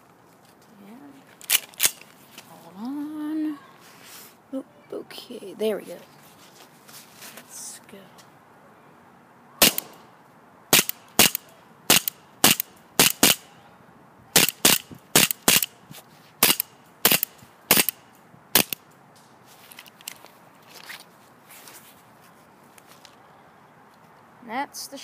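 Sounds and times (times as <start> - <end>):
airsoft pistol shots: 9.6 - 10.0, 10.7 - 13.4, 14.4 - 15.7, 16.4 - 18.0, 18.6 - 18.8.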